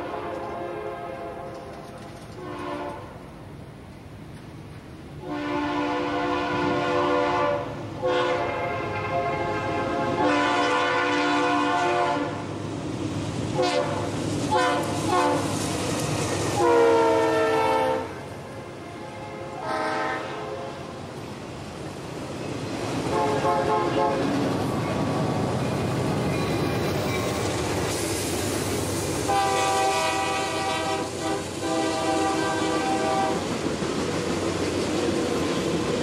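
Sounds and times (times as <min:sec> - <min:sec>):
locomotive air horn blasts: 0:00.0 - 0:01.7, 0:02.4 - 0:03.2, 0:05.2 - 0:12.4, 0:13.6 - 0:15.5, 0:16.6 - 0:20.9, 0:23.1 - 0:24.3, 0:29.3 - 0:33.4
freight train rolling rumble: 0:00.0 - 0:36.0.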